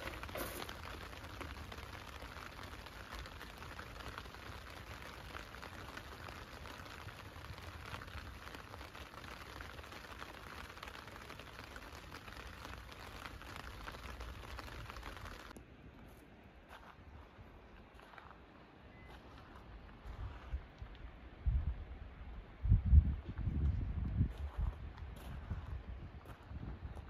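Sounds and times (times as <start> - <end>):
rain pattering on tent: 0.0 - 15.6, 16.7 - 21.2.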